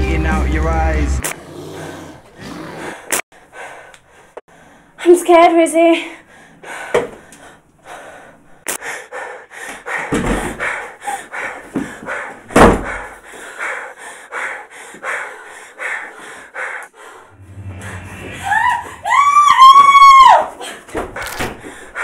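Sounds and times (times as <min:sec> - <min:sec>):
person panting heavily: 0:01.7 - 0:05.0, 0:06.2 - 0:17.4, 0:20.5 - 0:22.0
knocks and thumps: 0:10.1 - 0:10.7, 0:11.7 - 0:13.1.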